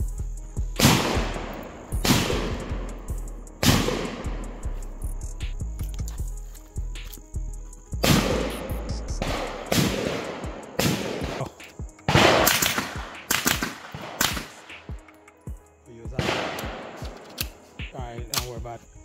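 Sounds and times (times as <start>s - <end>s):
background music: 0.0s - 19.0s
gunshots in quick pairs with echo: 0.8s - 2.9s, 3.6s - 4.5s, 8.0s - 14.9s, 16.2s - 18.6s.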